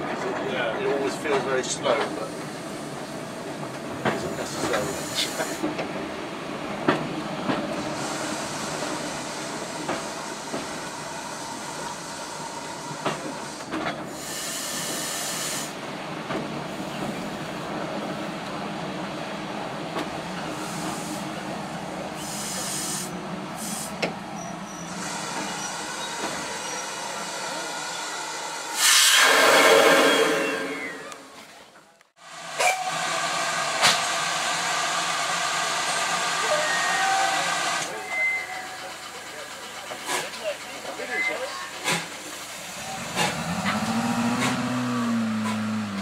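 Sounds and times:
steam train rumbling: 0.0 - 46.0
steam hissing: 4.3 - 5.7, 7.8 - 15.8, 22.1 - 24.0, 24.9 - 31.1
loud steam whistle: 28.8 - 31.2, 36.3 - 38.7.

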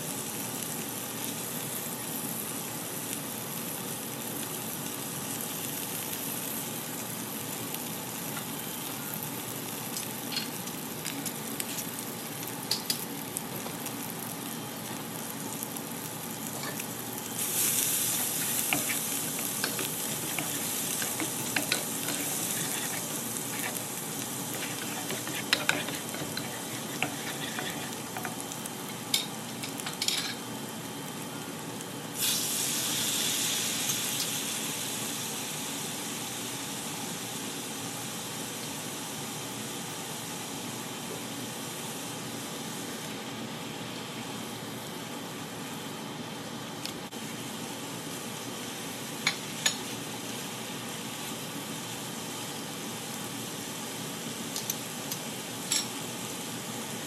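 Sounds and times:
food sizzling in butter: 0.1 - 31.2, 32.2 - 36.8
spatula scraping a pan: 18.0 - 28.4.

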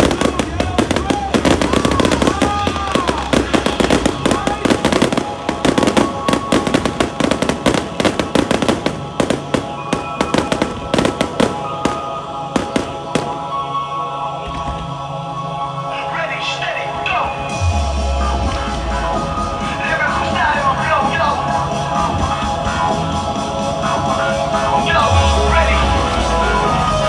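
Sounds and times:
fireworks crackling and banging: 0.0 - 13.8
music: 0.0 - 27.0.

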